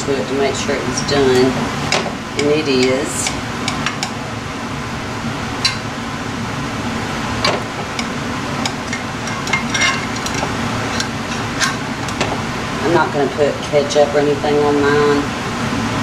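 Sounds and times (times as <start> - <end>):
air conditioner hum: 0.0 - 16.0
metal utensil scraping glass dish: 8.0 - 12.2.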